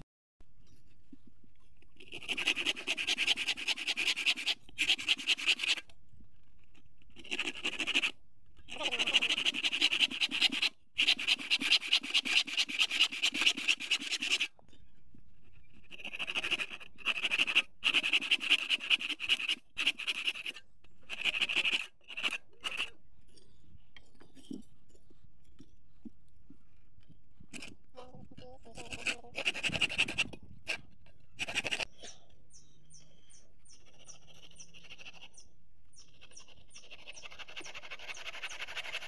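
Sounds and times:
hand saw cutting wood: 2.0s - 5.9s, 6.7s - 14.6s, 15.7s - 23.0s, 27.5s - 27.9s, 28.7s - 31.9s, 33.7s - 39.0s.

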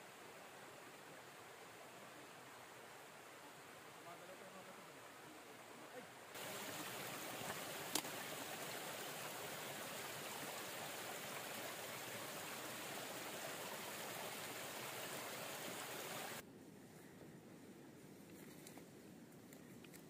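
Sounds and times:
stream rushing over rocks: 4.7s - 16.4s.

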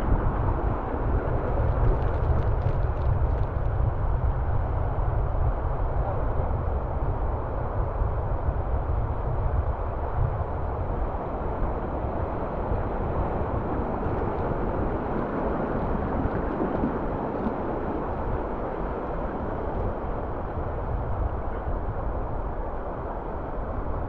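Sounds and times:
wind buffeting microphone: 0.0s - 24.0s
water rushing: 12.0s - 20.4s.

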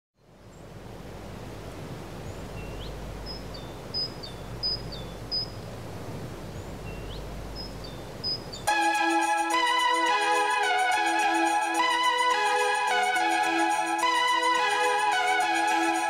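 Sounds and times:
background hiss and rumble: 0.2s - 16.0s
small birds chirping: 2.1s - 5.8s, 6.4s - 8.7s
keyboard music: 8.7s - 16.0s.

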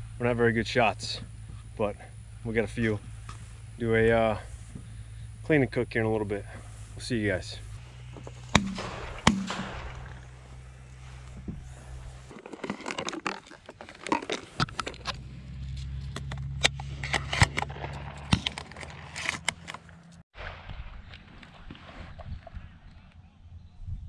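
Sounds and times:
low steady rumble: 0.0s - 24.0s
clicks taps and scrapes of gear: 12.3s - 20.2s.

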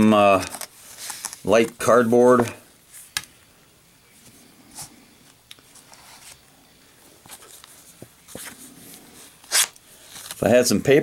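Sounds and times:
knife blade scratching card: 9.5s - 9.8s.

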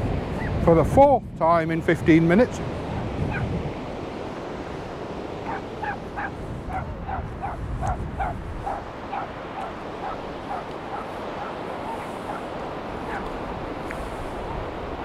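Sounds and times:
surf: 0.0s - 15.0s
wind: 0.0s - 15.0s
dog yapping: 5.4s - 7.6s, 8.2s - 12.5s, 13.1s - 13.3s.

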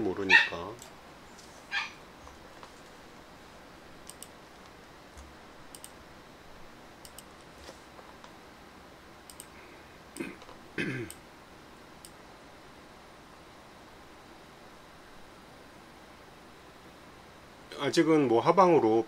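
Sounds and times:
computer mouse clicks: 4.0s - 6.0s, 7.0s - 7.4s, 9.3s - 9.6s, 12.0s - 12.2s.

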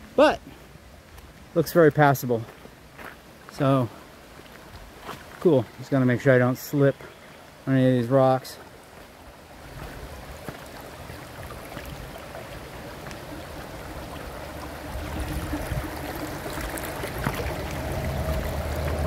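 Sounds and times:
rocky stream running: 0.0s - 19.0s
low rumble: 13.3s - 19.0s.

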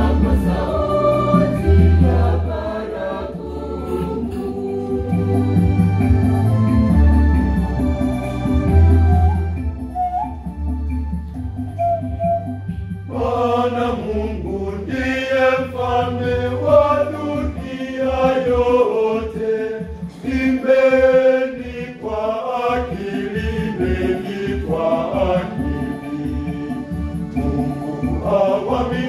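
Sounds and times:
choir singing a hymn: 0.0s - 7.6s, 13.1s - 29.0s
pulsing bass line: 0.0s - 18.8s
keyboard accompaniment: 0.0s - 29.0s.

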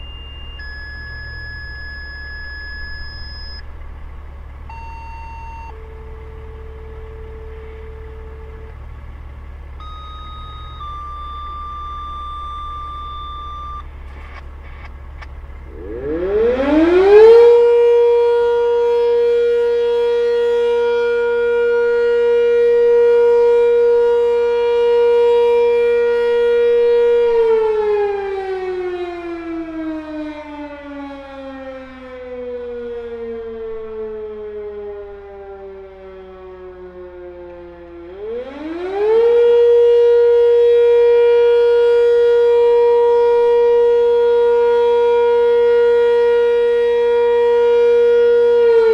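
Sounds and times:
fire siren winding: 0.0s - 3.7s, 4.7s - 8.8s, 9.8s - 14.9s, 15.7s - 48.9s
truck engine idling: 0.0s - 38.4s
steady alert tones: 9.8s - 13.8s.

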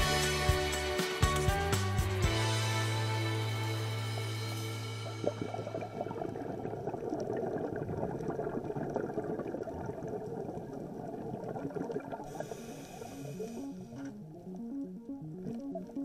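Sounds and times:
underwater crackling and bubbling: 3.6s - 16.0s
keyboard melody: 13.7s - 16.0s.

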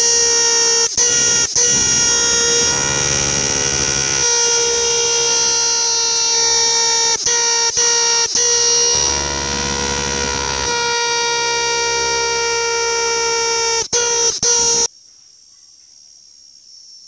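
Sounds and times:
cicada buzzing: 0.0s - 14.9s.

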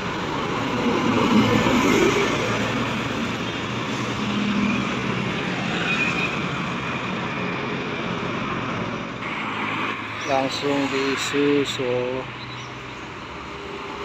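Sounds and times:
motorcycles passing: 0.0s - 14.0s.

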